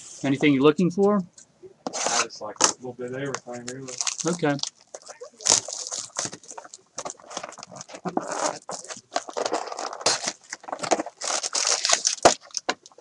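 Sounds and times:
foil card packs crinkling: 3.5 - 13.0.

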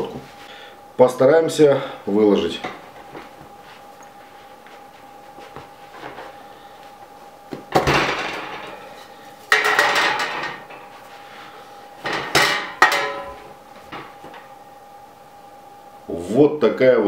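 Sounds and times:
metal pan clanking on wire rack: 12.1 - 13.4.

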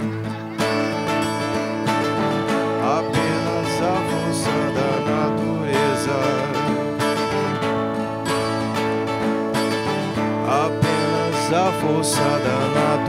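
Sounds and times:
acoustic guitars playing: 0.0 - 13.0.

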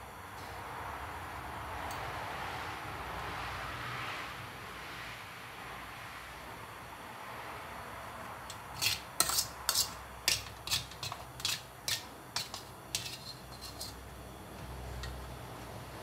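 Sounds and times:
metal tongs scraping metal strainer: 8.5 - 14.0.

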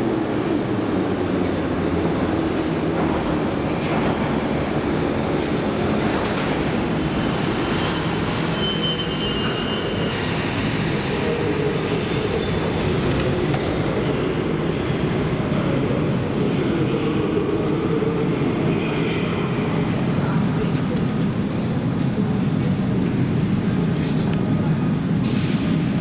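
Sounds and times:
train rumble: 0.0 - 26.0
brake squeal: 7.2 - 11.0.

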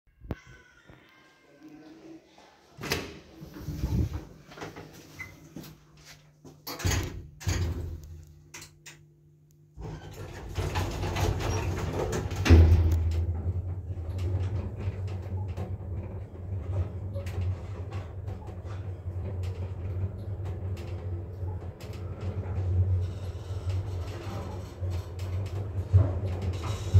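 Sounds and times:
lift travelling rumble and hum: 3.6 - 4.2, 9.8 - 26.9.

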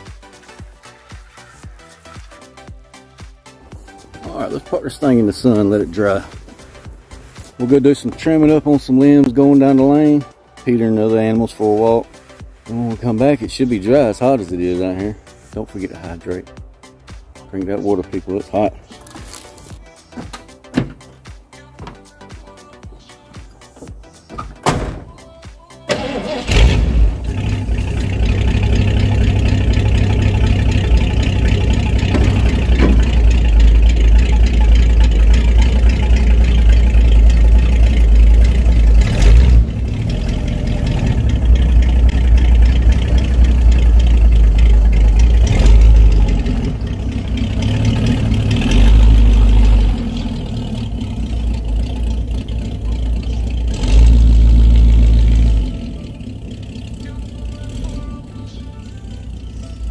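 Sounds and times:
pickup truck engine running: 26.0 - 59.9.

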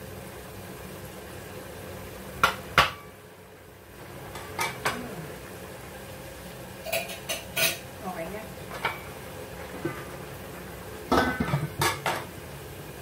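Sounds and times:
utensil knocking on cooking pan: 2.4 - 3.1.

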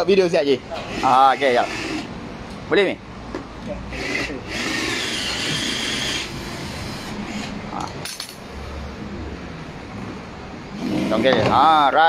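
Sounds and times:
cordless drill running: 0.8 - 2.1, 4.0 - 7.5.

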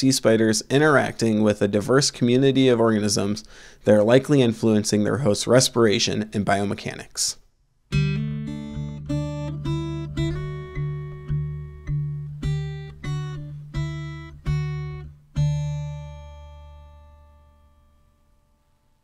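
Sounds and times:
acoustic guitar chords: 7.9 - 19.0.

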